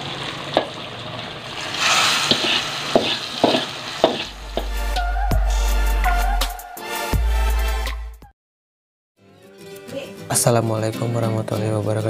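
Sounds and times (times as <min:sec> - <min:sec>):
paste hissing in liquid: 0:01.6 - 0:04.4
spatula scraping frying pan: 0:01.6 - 0:04.7
music: 0:04.4 - 0:08.3, 0:09.2 - 0:12.0.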